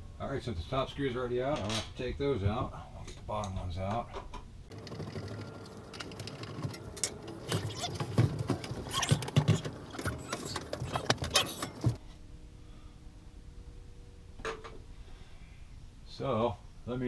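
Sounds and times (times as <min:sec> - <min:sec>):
microwave scraping and rattling: 0:04.7 - 0:12.0.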